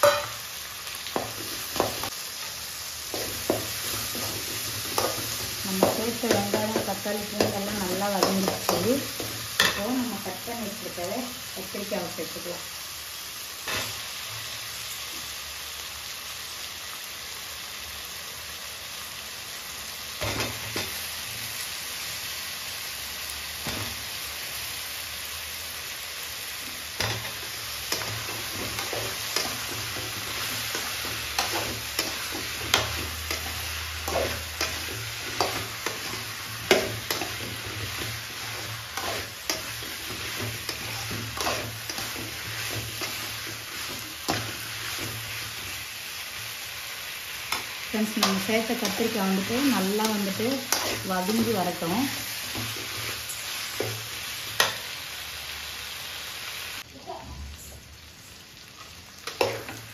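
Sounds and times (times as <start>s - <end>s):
vegetables sizzling in pan: 0.0s - 59.9s
metal spoon scraping pan: 27.0s - 45.6s, 47.5s - 51.8s.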